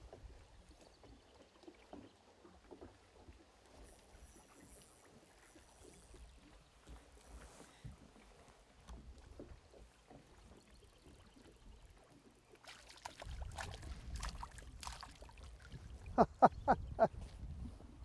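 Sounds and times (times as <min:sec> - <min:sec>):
fish splashing at water surface: 0:12.6 - 0:15.6.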